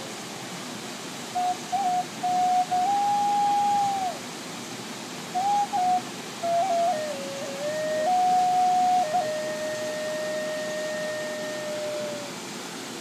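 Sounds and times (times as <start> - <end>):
waterfall rushing: 0.0 - 13.0
flute playing slow melody: 1.3 - 4.3, 5.3 - 12.4.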